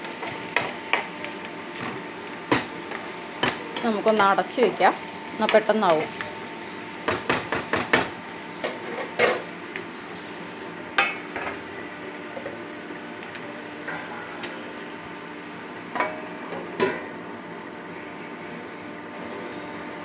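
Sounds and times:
vegetables sizzling in pan: 0:00.0 - 0:16.5.

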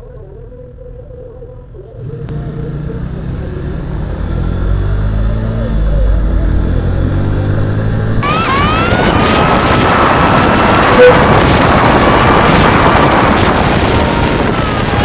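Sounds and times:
motorcycle engine revving: 0:02.0 - 0:15.0
rising whine: 0:02.0 - 0:15.0
wind noise on microphone: 0:08.1 - 0:15.0.

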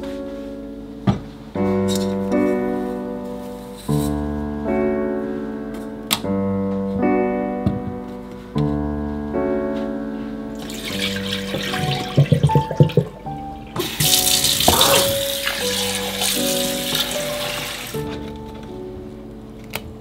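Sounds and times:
slow piano music: 0:00.0 - 0:20.0
water running into a sink: 0:10.6 - 0:18.0.

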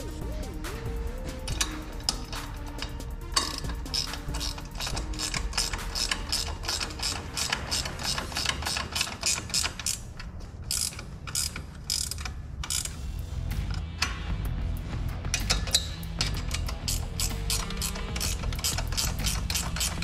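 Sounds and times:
ratchet wrench clicking: 0:01.4 - 0:14.3, 0:15.1 - 0:20.0.

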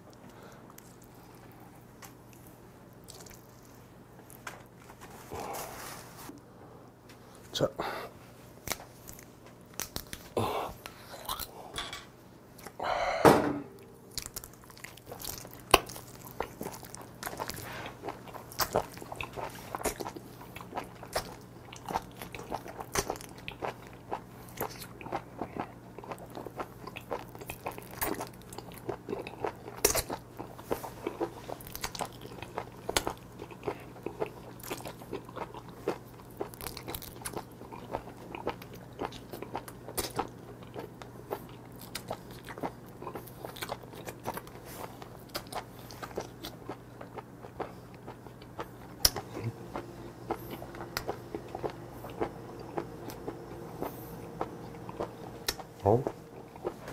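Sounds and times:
wet slurping and chewing: 0:14.1 - 0:56.9.

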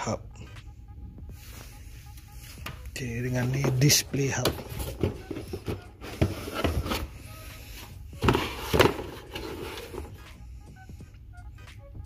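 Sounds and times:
cardboard packaging rubbing and scraping: 0:04.6 - 0:10.2.

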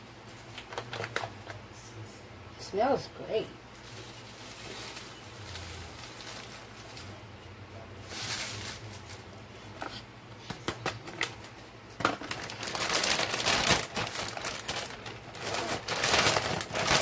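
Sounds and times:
plastic bag crinkling: 0:03.7 - 0:07.2, 0:08.0 - 0:09.4, 0:11.2 - 0:17.0.

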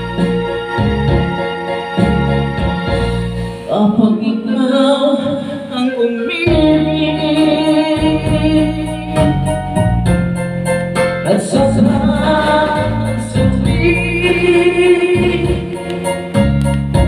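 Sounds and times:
keyboard backing track: 0:00.0 - 0:17.0
man singing a slow ballad: 0:03.6 - 0:09.6, 0:11.2 - 0:16.1.

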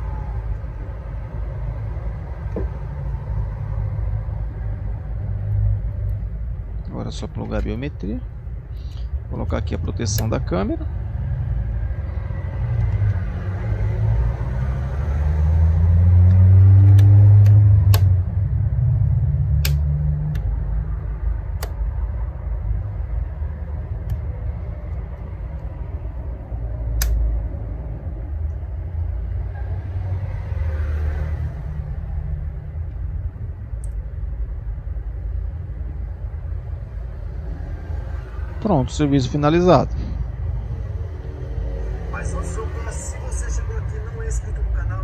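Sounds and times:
steady low rumble: 0:00.0 - 0:15.1, 0:16.9 - 0:30.7, 0:31.3 - 0:45.0.

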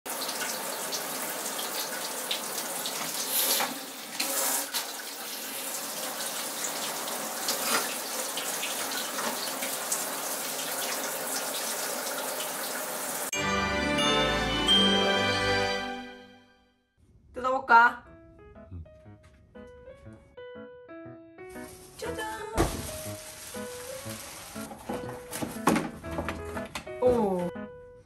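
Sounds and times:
shower head spraying water: 0:00.3 - 0:13.3.

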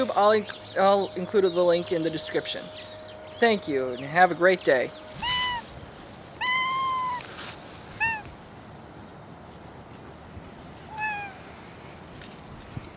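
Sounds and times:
cat meowing: 0:05.2 - 0:05.7, 0:06.4 - 0:07.3, 0:08.0 - 0:08.4, 0:10.9 - 0:11.4.

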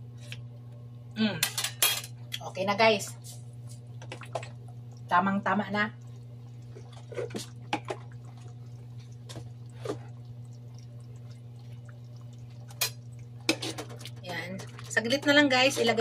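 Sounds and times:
steady low hum: 0:00.0 - 0:16.0
sauce bubbles popping: 0:03.8 - 0:05.1, 0:05.9 - 0:15.4.

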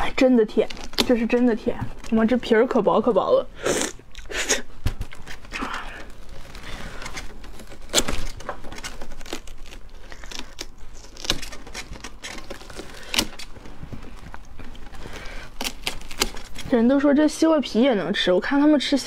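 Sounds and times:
watermelon crunching snaps: 0:03.8 - 0:16.7
watermelon flesh tearing wetly: 0:03.8 - 0:16.7.

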